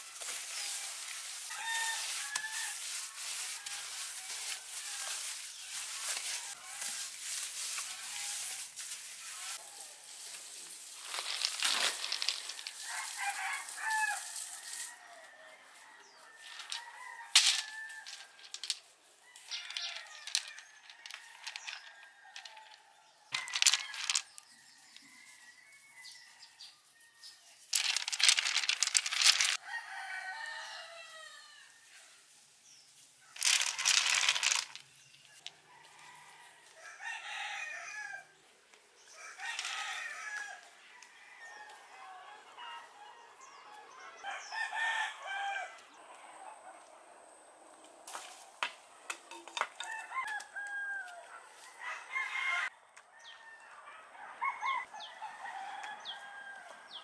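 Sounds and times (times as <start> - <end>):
hands scraping wet sand and stones: 0.0 - 15.0, 23.3 - 24.5, 27.7 - 29.6, 33.4 - 34.8
rooster crowing: 0.6 - 7.0, 11.8 - 18.6, 19.2 - 26.7, 29.6 - 31.8, 35.6 - 38.3, 39.2 - 46.5, 49.8 - 57.0.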